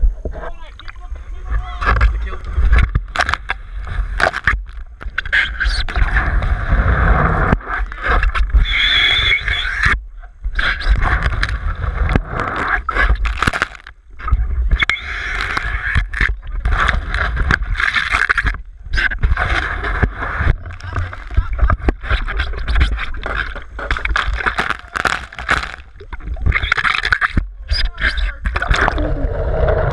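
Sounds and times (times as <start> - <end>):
water splashing against camera housing: 1.7 - 6.4, 10.6 - 29.0.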